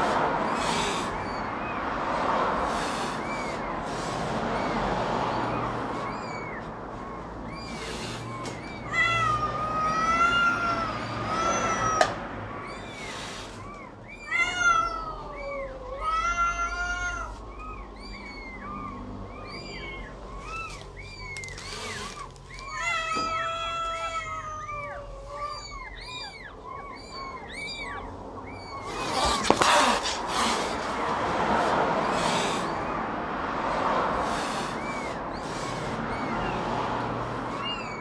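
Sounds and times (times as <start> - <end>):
high chirping calls: 0.4 - 1.9, 2.8 - 15.8, 16.6 - 31.1, 34.2 - 38.0
cat meowing loudly: 7.7 - 12.2, 14.2 - 30.1.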